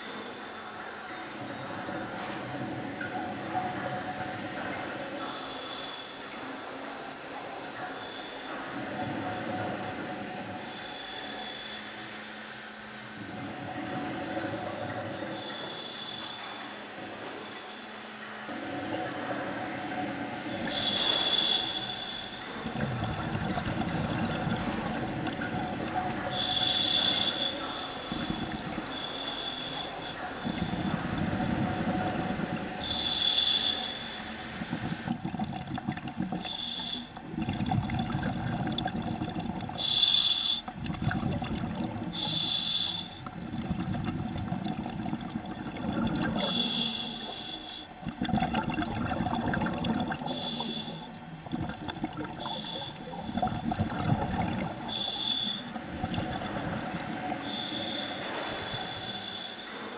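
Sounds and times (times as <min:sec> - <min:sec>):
regulator inhalation hiss: 0:20.7 - 0:22.8, 0:26.1 - 0:31.6, 0:32.4 - 0:35.2, 0:36.2 - 0:37.3, 0:39.6 - 0:40.7, 0:42.0 - 0:43.4, 0:46.3 - 0:48.0, 0:49.5 - 0:51.5, 0:52.1 - 0:53.4, 0:54.0 - 0:55.9, 0:57.3 - 0:59.9
exhaled bubbles rushing: 0:22.4 - 0:33.0, 0:34.2 - 0:39.9, 0:40.6 - 0:42.3, 0:43.1 - 0:46.6, 0:47.9 - 0:55.0, 0:55.6 - 0:57.6.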